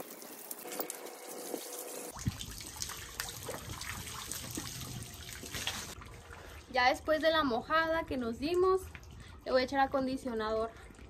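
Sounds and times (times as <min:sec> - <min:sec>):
water splashing from hose: 0:00.0 - 0:07.6.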